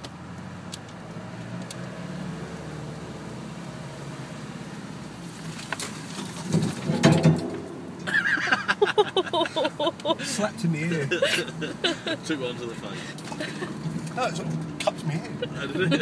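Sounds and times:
vehicle engine at low revs: 0.0s - 16.0s
branches knocking and scraping vehicle: 5.0s - 8.7s, 12.6s - 16.0s.

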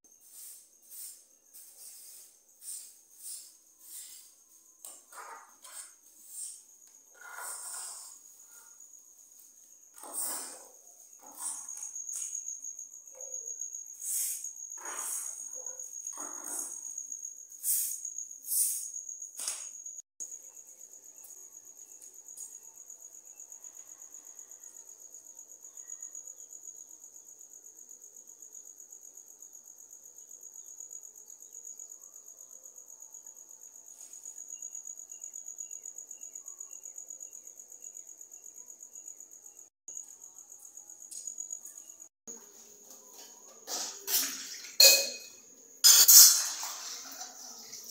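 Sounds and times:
broom sweeping concrete floor: 0.1s - 4.7s, 5.6s - 8.5s, 9.3s - 12.4s, 13.9s - 16.8s, 17.5s - 19.7s
crickets trilling: 0.1s - 47.9s.

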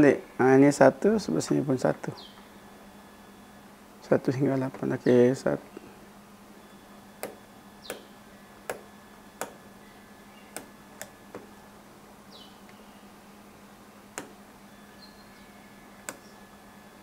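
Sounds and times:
small switches clicking: 10.6s - 11.2s, 16.0s - 16.3s.

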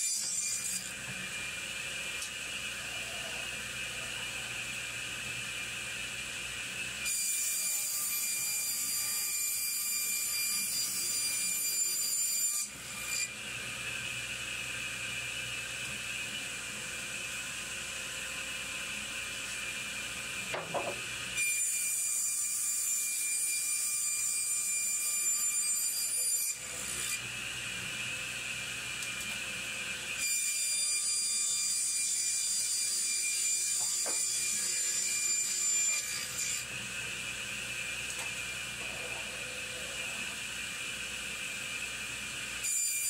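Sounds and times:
saw ripping a board: 0.0s - 1.1s, 30.0s - 36.8s
saw whining: 0.0s - 43.0s.

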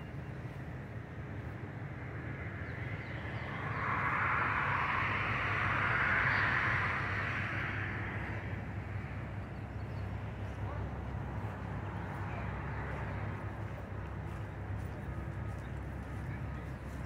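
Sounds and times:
road traffic rumble: 0.0s - 17.0s
passing vehicle tyre hiss: 1.9s - 9.6s.

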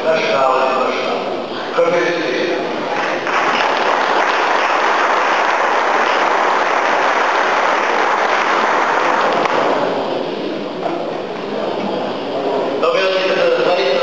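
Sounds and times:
crowd applauding: 3.0s - 10.1s.

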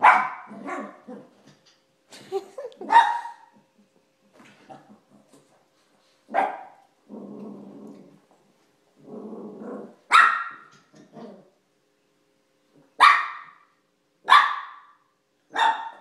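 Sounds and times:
dog yapping: 0.0s - 1.0s, 10.1s - 10.7s, 13.0s - 13.6s, 15.5s - 16.0s
small dog barking: 0.0s - 1.1s, 2.8s - 3.6s, 6.3s - 6.8s, 10.1s - 10.7s, 13.0s - 16.0s
dog growling: 7.0s - 8.2s, 9.0s - 10.0s, 10.9s - 11.6s.

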